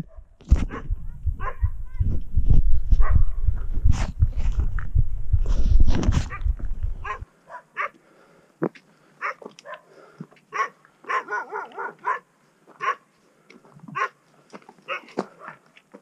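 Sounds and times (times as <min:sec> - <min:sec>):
dog barking: 0:00.1 - 0:01.7, 0:03.0 - 0:03.2, 0:07.0 - 0:08.0, 0:09.2 - 0:09.9, 0:10.5 - 0:13.1, 0:14.0 - 0:14.2, 0:14.9 - 0:15.6.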